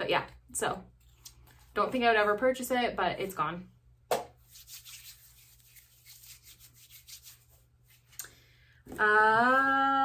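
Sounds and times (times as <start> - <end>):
hands rubbing lotion: 4.1 - 8.2
woman humming: 8.9 - 10.0.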